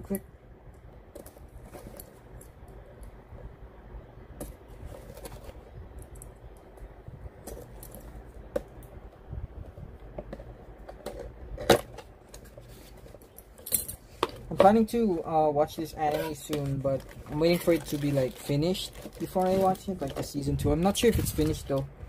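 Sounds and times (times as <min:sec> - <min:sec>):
packaging clicks taps and rustles: 0:15.9 - 0:21.9.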